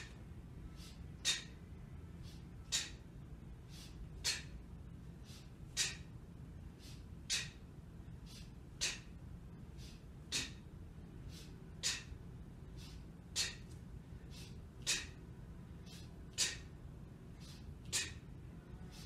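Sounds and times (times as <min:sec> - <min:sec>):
sniffing breaths in: 0:00.0 - 0:15.2, 0:15.8 - 0:18.2, 0:18.8 - 0:19.0
person exhaling sharply: 0:00.7 - 0:01.6, 0:02.2 - 0:03.0, 0:03.7 - 0:04.6, 0:05.2 - 0:06.1, 0:06.8 - 0:07.6, 0:08.3 - 0:09.1, 0:09.8 - 0:10.6, 0:11.3 - 0:12.2, 0:12.8 - 0:15.2, 0:15.9 - 0:16.8, 0:17.4 - 0:18.2.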